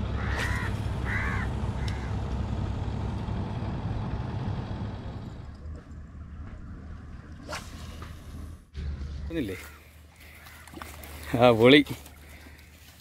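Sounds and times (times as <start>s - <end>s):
boat engine rumbling: 0.0s - 13.0s
crow cawing: 0.2s - 2.2s, 9.5s - 11.3s, 12.1s - 13.0s.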